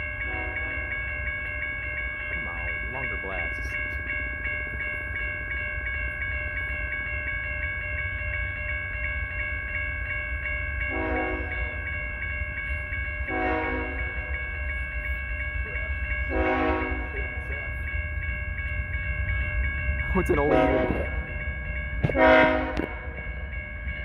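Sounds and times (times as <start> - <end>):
railroad crossing bells ringing: 0.0 - 24.0
locomotive air horn blasts: 0.3 - 0.7, 10.9 - 11.5, 13.3 - 14.0, 16.3 - 17.0, 22.1 - 22.9.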